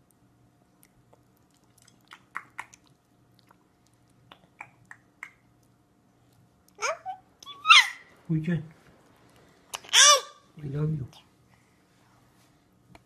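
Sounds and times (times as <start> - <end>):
baby chewing wet mouth smacks: 0.8 - 6.8, 9.3 - 9.9.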